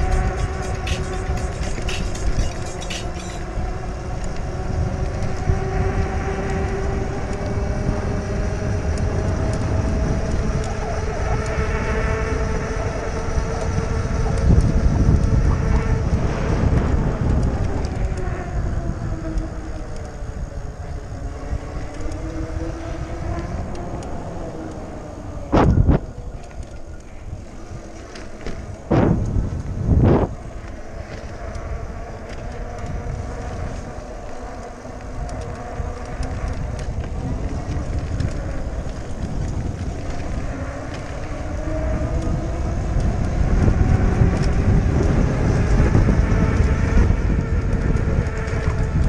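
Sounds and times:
tyre noise on concrete: 0.0s - 3.6s
electric motor whine: 0.0s - 49.0s
wind rumbling on microphone: 0.0s - 49.0s.

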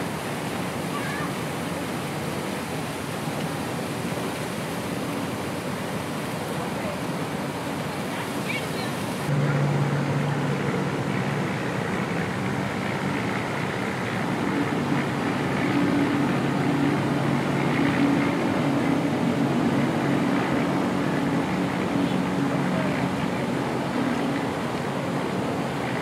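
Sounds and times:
constant rushing noise: 0.0s - 26.0s
low engine drone: 0.0s - 26.0s.

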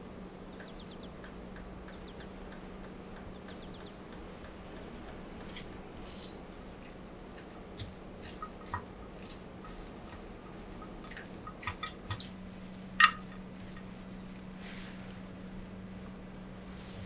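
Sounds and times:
wet stirring of vegetables: 7.3s - 12.4s.

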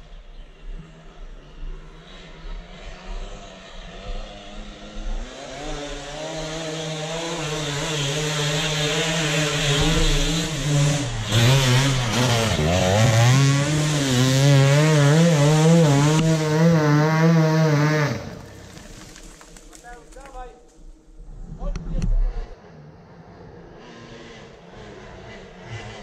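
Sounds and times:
dirt bike engine revving: 2.0s - 19.4s, 23.8s - 26.0s.

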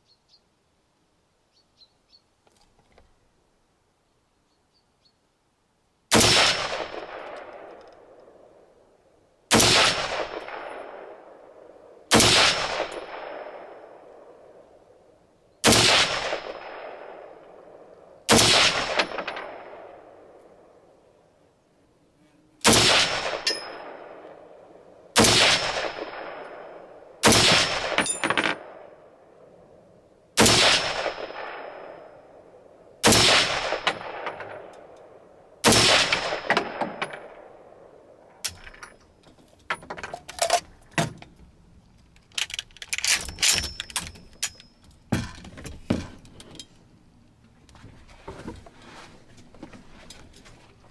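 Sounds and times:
rifle shots with echo: 6.1s - 8.8s, 9.5s - 14.8s, 15.6s - 20.9s, 22.6s - 29.6s, 30.4s - 38.6s.

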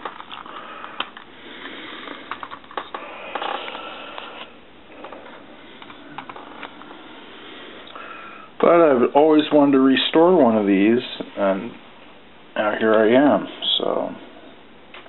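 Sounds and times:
plastic scraping and rubbing: 0.0s - 1.3s, 2.1s - 6.9s.

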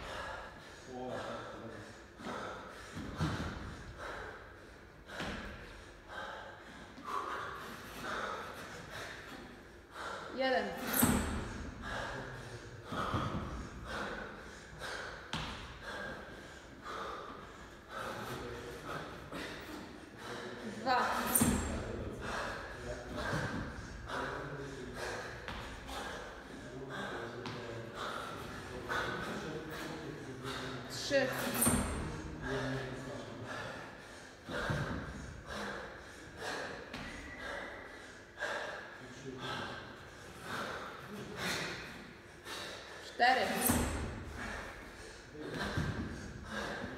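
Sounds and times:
man breathing hard in gasps: 0.0s - 20.8s, 33.4s - 46.9s.

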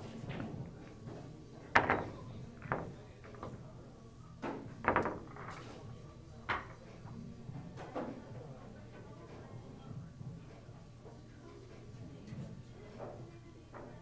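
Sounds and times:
pool balls clacking: 0.0s - 3.6s, 4.4s - 5.8s.

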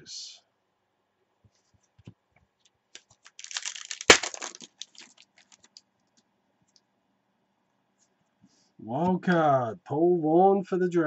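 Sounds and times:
plastic wrapper tearing: 3.0s - 5.8s
wrapper rustling: 3.0s - 5.8s.

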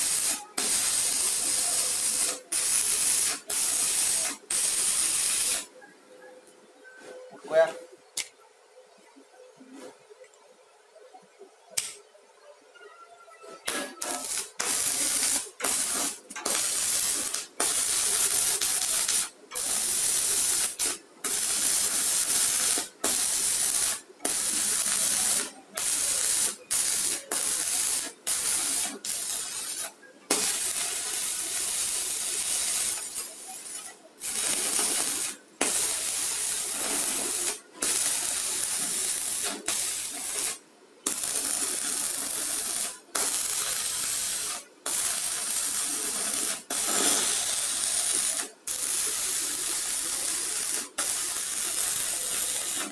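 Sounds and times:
welding arc frying crackle: 0.0s - 5.8s, 11.8s - 12.0s, 13.6s - 52.9s.

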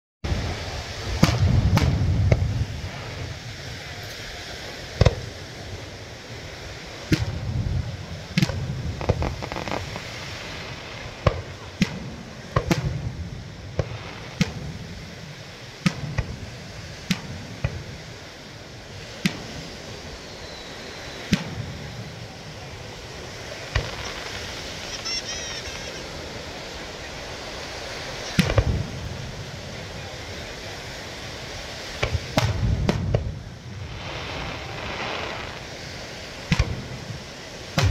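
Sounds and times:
deep firework booms: 0.2s - 25.0s, 26.0s - 37.9s
fireworks bangs and pops: 0.3s - 37.9s.

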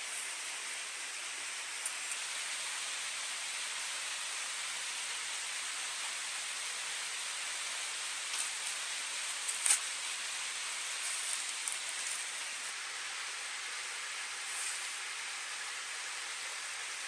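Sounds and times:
river water flowing over rock: 0.0s - 17.0s
brief rustles and taps: 9.5s - 9.9s.

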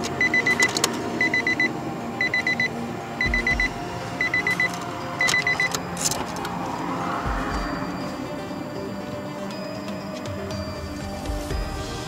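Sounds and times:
car warning chime beeps: 0.0s - 6.6s.

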